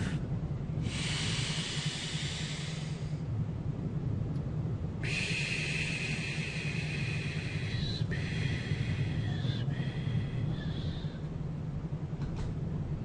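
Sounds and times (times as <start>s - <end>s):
person breathing in and out: 0.8s - 3.3s, 5.0s - 11.3s.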